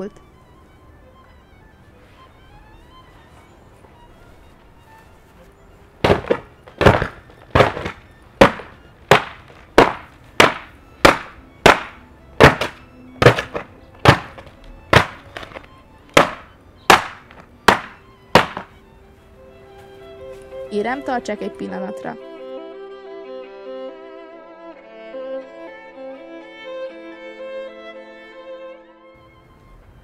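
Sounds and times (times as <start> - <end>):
wooden frame being smashed: 6.0 - 18.7.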